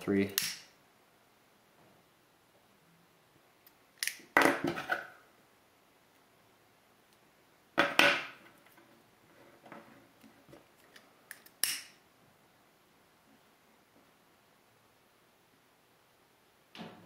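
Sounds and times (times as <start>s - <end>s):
lighter flint wheel striking: 0.4s - 0.6s, 11.3s - 11.9s.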